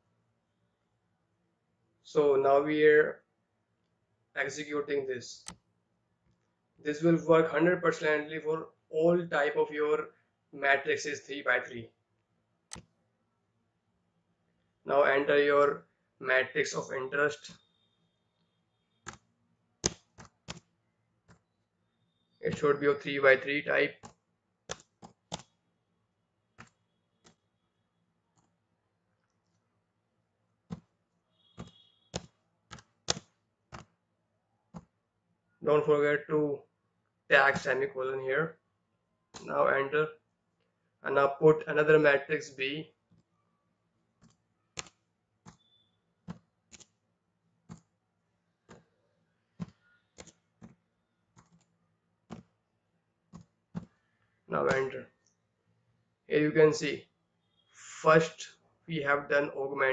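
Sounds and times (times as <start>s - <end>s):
computer keyboard keystrokes: 19.0s - 20.7s, 24.0s - 25.5s, 26.6s - 27.4s, 31.6s - 33.9s, 44.2s - 47.0s, 49.6s - 50.8s
keyboard keys clicking: 24.0s - 25.5s, 31.6s - 33.9s, 49.6s - 50.8s.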